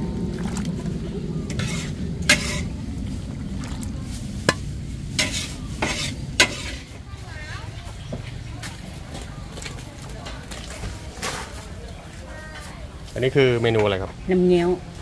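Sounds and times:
curry bubbling and sizzling: 0:00.0 - 0:11.8
metal ladle clanking on pot: 0:01.5 - 0:02.7, 0:04.4 - 0:07.0.

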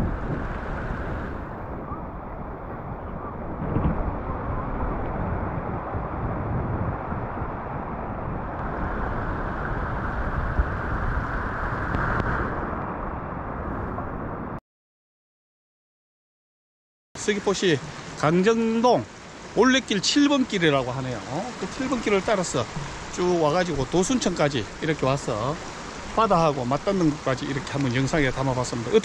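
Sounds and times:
wind on microphone: 0:00.0 - 0:14.6
water washing: 0:17.2 - 0:29.0.

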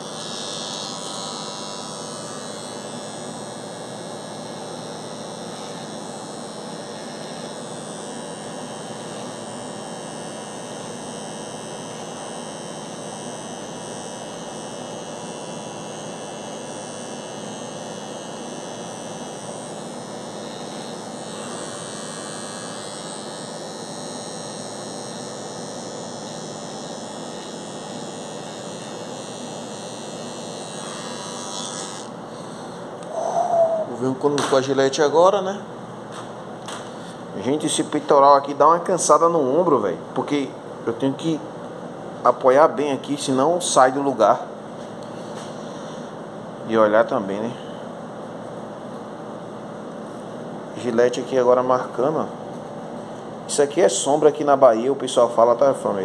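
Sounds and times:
electric hair trimmer buzzing: 0:00.0 - 0:35.1.

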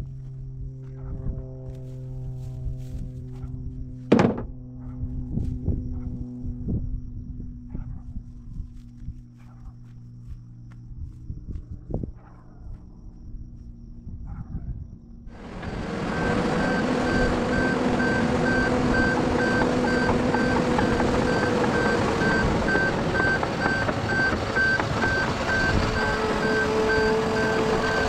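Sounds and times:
dozer diesel engine and tracks: 0:15.3 - 0:28.0
reversing alarm beeps: 0:15.4 - 0:28.0.

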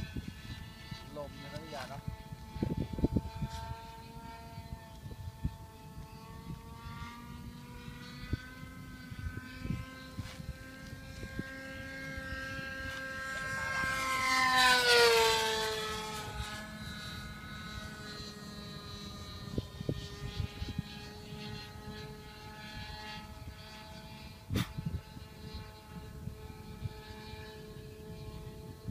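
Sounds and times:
model airplane engine buzzing: 0:00.0 - 0:28.9.

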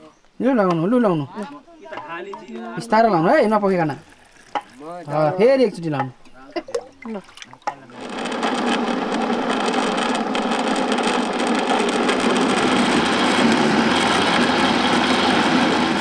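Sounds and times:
blender motor grinding beans: 0:07.9 - 0:16.0.

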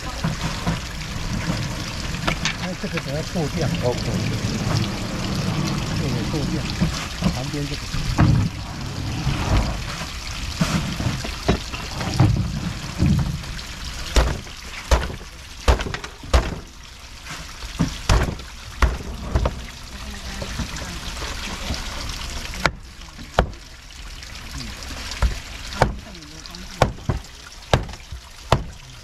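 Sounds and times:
trickling water: 0:00.0 - 0:29.0
cleaver chopping on board: 0:26.8 - 0:28.7.

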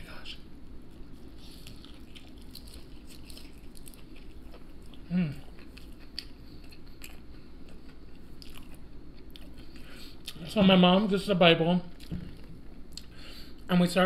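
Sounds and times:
crunching and chewing fried fish: 0:00.8 - 0:10.5
person humming: 0:05.1 - 0:05.4.

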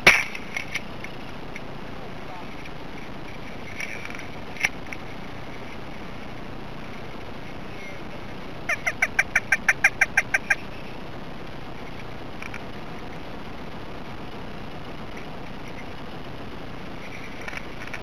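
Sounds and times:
duck-like quacking calls: 0:08.7 - 0:10.7.

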